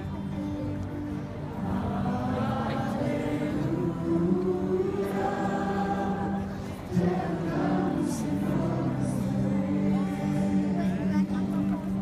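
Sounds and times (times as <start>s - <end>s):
choir singing worship song: 1.6s - 11.1s.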